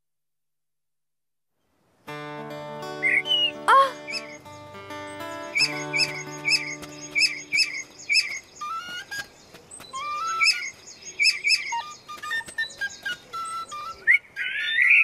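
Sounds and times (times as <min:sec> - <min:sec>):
light hopping cartoon music: 0:02.1 - 0:14.1
cartoon bird chirping: 0:03.0 - 0:04.4, 0:05.4 - 0:09.3, 0:10.0 - 0:15.0.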